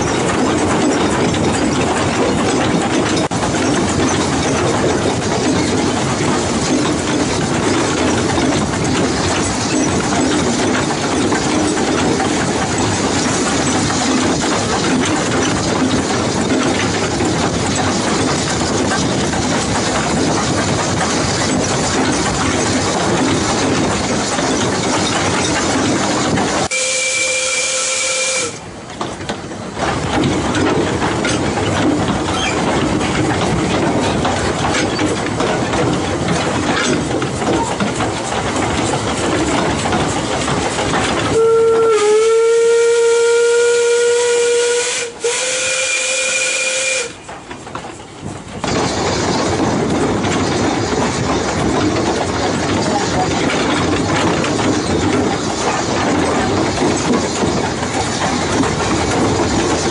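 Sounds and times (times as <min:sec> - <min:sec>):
steam locomotive running: 0:00.0 - 0:59.9
steam whistle: 0:26.7 - 0:28.6, 0:41.3 - 0:47.2.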